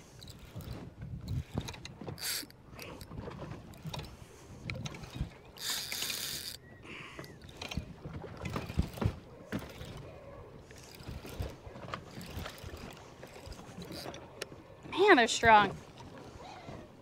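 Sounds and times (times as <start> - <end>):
water slapping boat hull: 0.0 - 17.0
fishing reel clicking and ratcheting: 0.2 - 6.6, 12.2 - 14.2.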